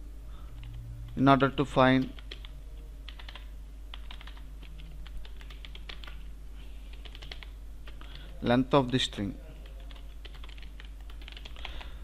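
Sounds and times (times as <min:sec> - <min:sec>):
steady low hum: 0:00.0 - 0:12.0
keyboard keys clicking: 0:02.0 - 0:02.5, 0:03.1 - 0:06.2, 0:07.0 - 0:11.8.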